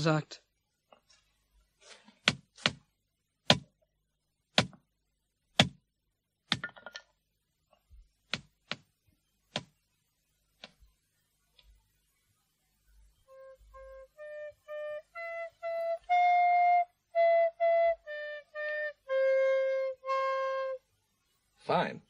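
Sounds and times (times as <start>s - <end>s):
sharp knocks: 2.2s - 2.8s, 3.5s - 3.7s, 4.6s - 4.8s, 5.6s - 5.8s.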